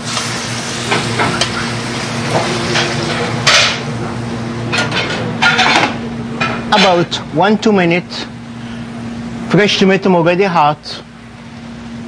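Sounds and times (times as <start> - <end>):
meat sizzling in a pan: 0.0 - 3.0
steady low hum: 0.0 - 12.0.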